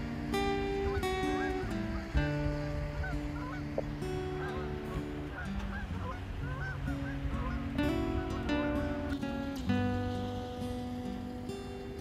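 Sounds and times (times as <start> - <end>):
music of long held notes: 0.0 - 12.0
short arching bird-like calls: 0.8 - 2.2, 2.9 - 8.5.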